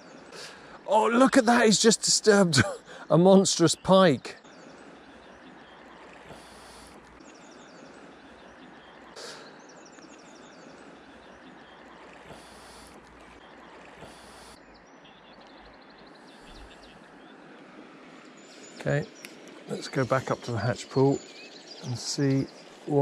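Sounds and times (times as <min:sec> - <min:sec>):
flowing river water: 0:00.0 - 0:23.0
bird chirping: 0:02.8 - 0:23.0.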